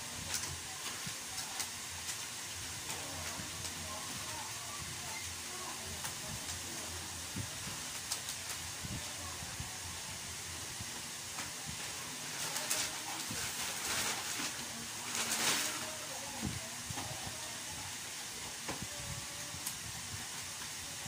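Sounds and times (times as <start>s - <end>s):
steady hiss: 0.0s - 21.0s
vinyl wallpaper rustling scrapes: 11.6s - 16.2s.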